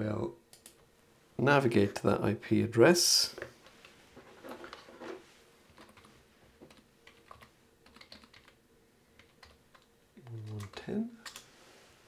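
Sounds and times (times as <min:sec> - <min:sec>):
typing on computer keyboard: 0:05.8 - 0:06.1, 0:06.7 - 0:08.6, 0:09.2 - 0:11.5.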